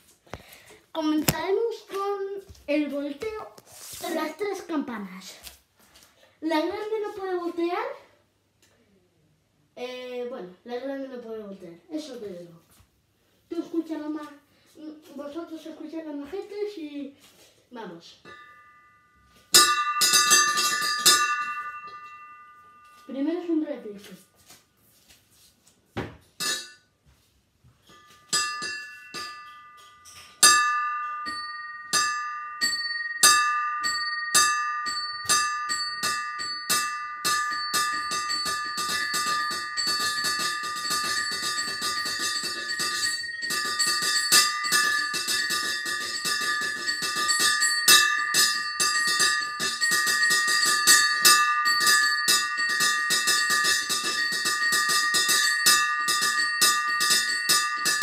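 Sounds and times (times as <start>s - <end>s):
small bells ringing: 18.2s - 23.6s, 27.8s - 58.0s.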